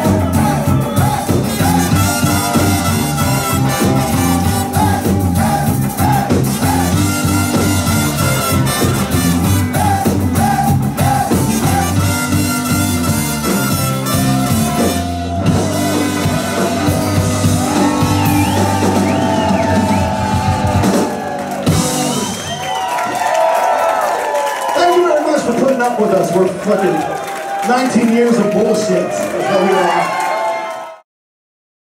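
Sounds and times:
live ska band playing: 0:00.0 - 0:22.8
saxophone: 0:00.0 - 0:22.8
crowd voices: 0:00.0 - 0:30.2
trumpets: 0:00.3 - 0:22.6.

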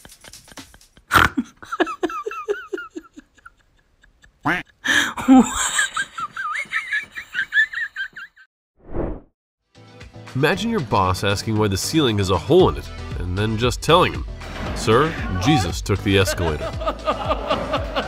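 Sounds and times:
person laughing hard: 0:00.2 - 0:08.4, 0:16.3 - 0:18.0.

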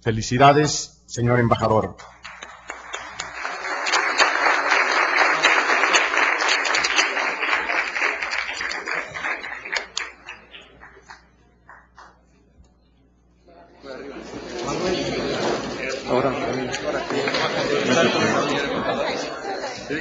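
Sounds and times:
people applauding: 0:02.0 - 0:12.2, 0:14.5 - 0:19.3.

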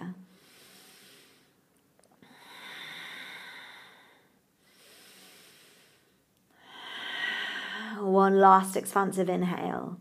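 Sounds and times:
woman breathing slowly: 0:00.2 - 0:08.2.

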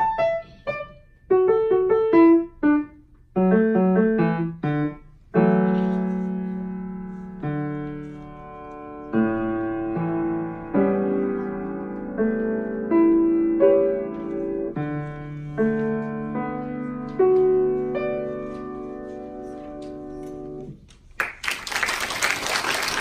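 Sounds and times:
grand piano playing: 0:00.0 - 0:20.8
audience applause: 0:21.2 - 0:23.0.

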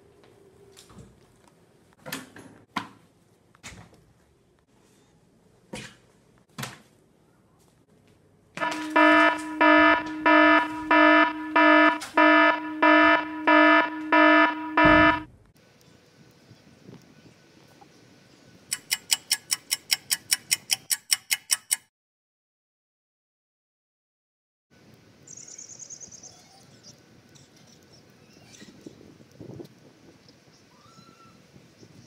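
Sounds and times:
electronic alarm buzzer beeping: 0:08.6 - 0:15.3.

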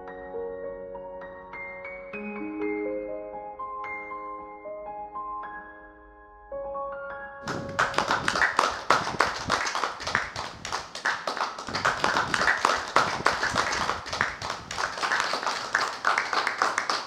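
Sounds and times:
people clapping: 0:07.4 - 0:17.0.

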